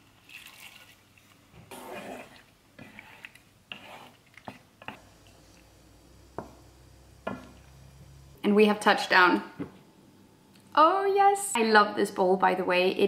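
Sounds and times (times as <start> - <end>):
water pouring and splashing: 0.1 - 1.4
wooden spoon stirring pasta: 1.7 - 8.2.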